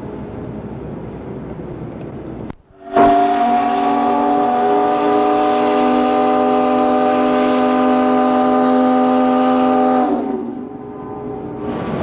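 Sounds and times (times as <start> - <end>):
steam whistle chord: 2.7 - 11.7.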